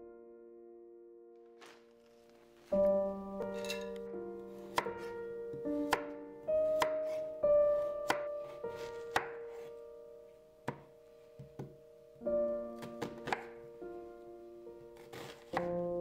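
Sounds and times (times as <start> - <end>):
light piano music: 0.0 - 16.0
knife chopping on wooden board: 3.5 - 4.0, 4.7 - 5.1, 5.7 - 7.2, 8.0 - 9.4, 12.8 - 13.5, 15.0 - 15.7.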